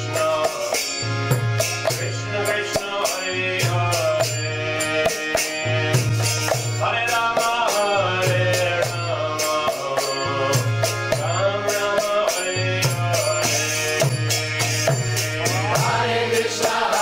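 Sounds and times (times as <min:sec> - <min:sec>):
steady drum beat: 0:00.0 - 0:04.4, 0:05.0 - 0:17.0
hand cymbals: 0:00.0 - 0:17.0
voices chanting: 0:15.4 - 0:17.0.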